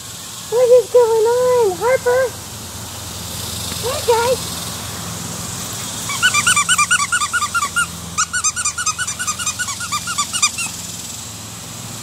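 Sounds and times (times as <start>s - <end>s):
squeaky dog toy squeaking: 6.1s - 10.8s.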